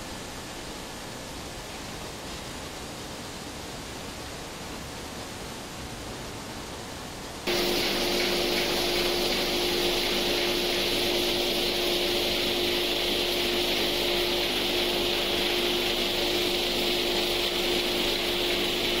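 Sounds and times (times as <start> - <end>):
vibrating feeder machine hum: 7.5 - 19.0.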